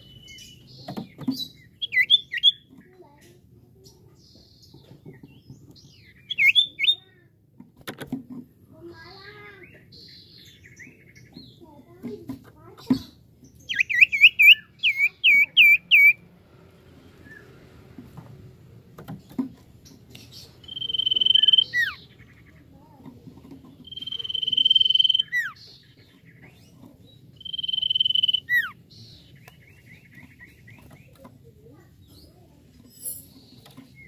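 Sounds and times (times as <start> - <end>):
bird chirps and whistles: 6.2 - 7.0, 13.7 - 16.2, 20.6 - 22.0, 23.8 - 25.6, 27.4 - 28.8.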